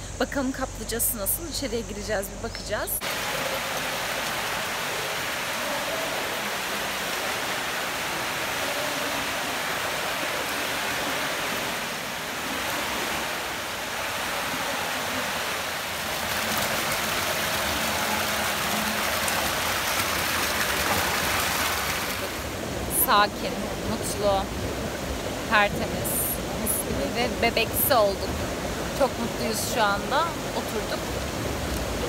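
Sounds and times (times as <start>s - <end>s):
water pouring into pool: 3.0s - 22.6s.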